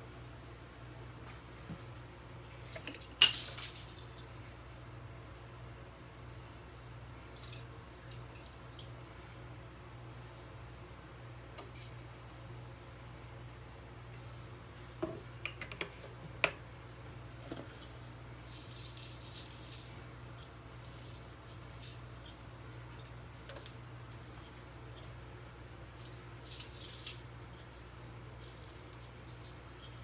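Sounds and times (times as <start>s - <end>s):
spice jar rattling: 25.9s - 27.8s.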